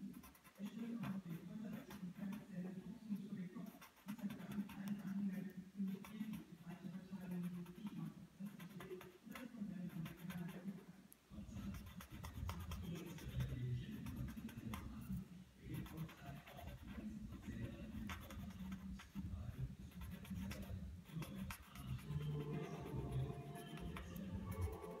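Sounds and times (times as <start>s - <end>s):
blending stump rubbing on paper: 3.6s - 6.4s, 11.5s - 25.0s.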